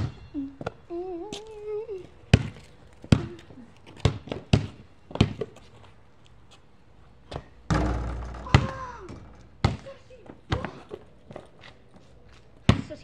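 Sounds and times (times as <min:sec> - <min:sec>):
basketball bouncing on concrete: 0:02.3 - 0:05.6, 0:07.3 - 0:11.5, 0:12.6 - 0:13.0.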